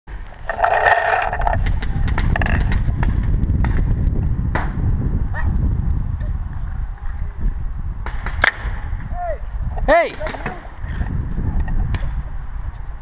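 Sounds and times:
sharp crack: 0:00.1 - 0:04.8, 0:08.0 - 0:08.9, 0:09.9 - 0:10.7
wind rumble: 0:00.1 - 0:13.0
gear clicks and knocks: 0:00.4 - 0:02.9.

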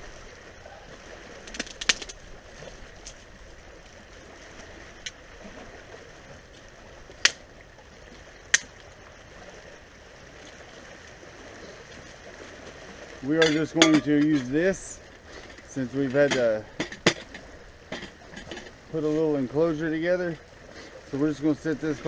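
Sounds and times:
dead branches cracking: 0:01.4 - 0:03.3.

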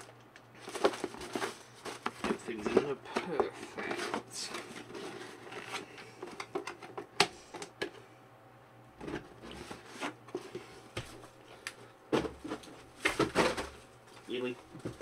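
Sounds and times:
cardboard boxes knocking and rustling: 0:00.6 - 0:04.3, 0:12.1 - 0:13.8.

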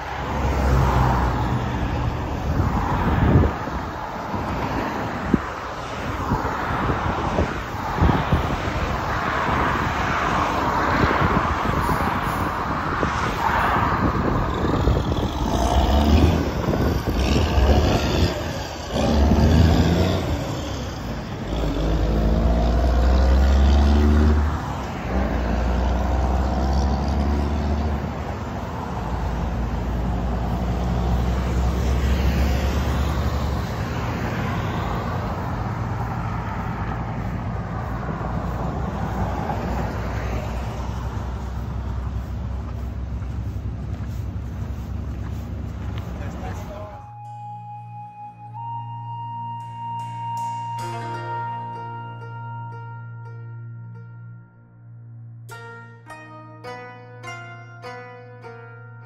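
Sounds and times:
engine speeding up: 0:00.0 - 0:52.5
highway traffic passing: 0:00.0 - 0:59.0
low engine hum: 0:14.0 - 0:55.5.

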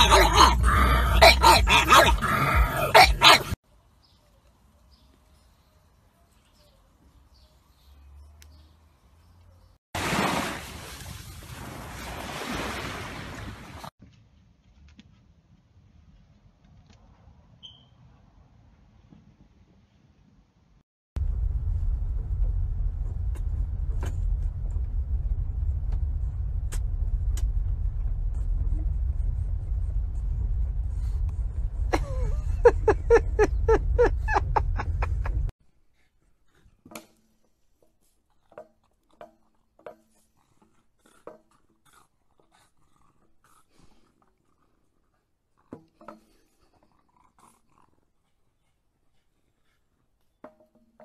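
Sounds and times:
low rumble: 0:21.2 - 0:35.5.

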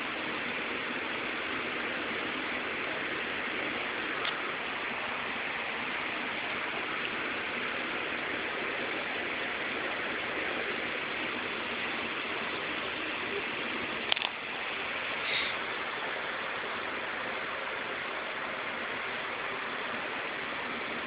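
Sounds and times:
steady hiss: 0:00.0 - 0:21.0
sharp clicks: 0:14.0 - 0:14.4.

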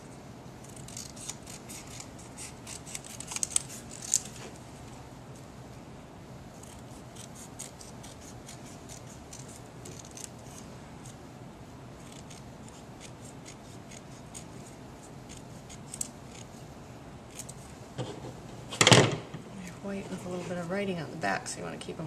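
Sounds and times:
scissors snipping paper: 0:00.6 - 0:04.4, 0:06.6 - 0:10.6.

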